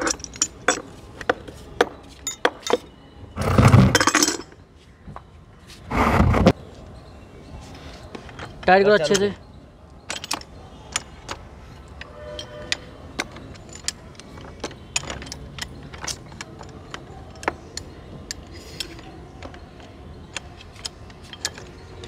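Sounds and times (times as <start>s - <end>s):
metallic clicks of pipe wrenches: 8.3s - 22.0s.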